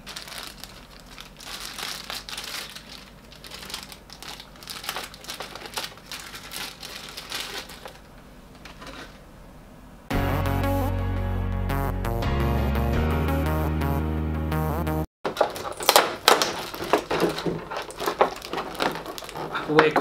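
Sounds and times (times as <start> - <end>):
plastic bags crinkling: 0.0 - 9.2, 15.3 - 20.0
background music: 10.1 - 15.1.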